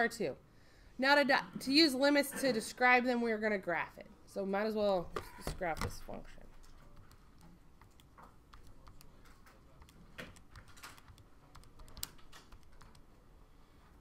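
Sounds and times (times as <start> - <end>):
keys clicking: 6.6 - 13.1.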